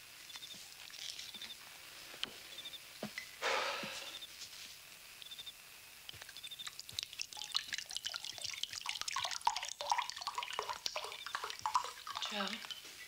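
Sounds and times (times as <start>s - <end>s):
splashing and drips: 6.2s - 13.0s
liquid pouring into glass: 6.6s - 12.8s.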